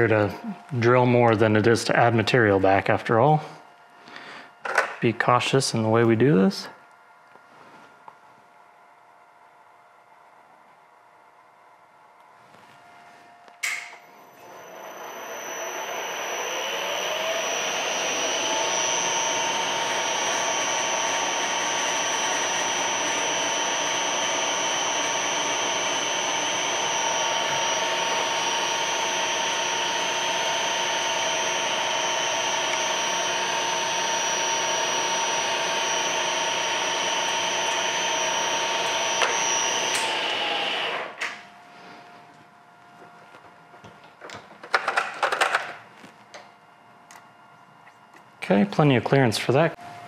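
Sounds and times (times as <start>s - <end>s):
mill spindle whining: 13.6s - 41.5s
drill boring into brass: 14.3s - 41.2s.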